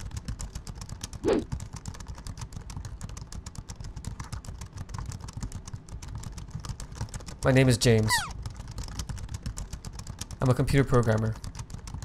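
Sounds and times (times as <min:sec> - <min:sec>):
fast typing on keyboard: 0:00.0 - 0:12.0.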